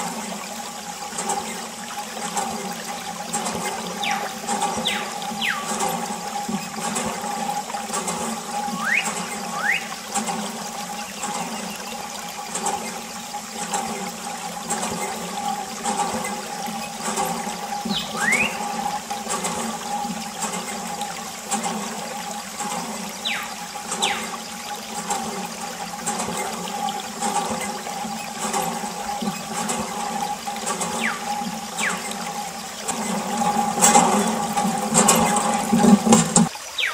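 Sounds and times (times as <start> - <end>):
steady hum: 0.0 - 36.5
water stream splashing on plastic: 0.0 - 36.9.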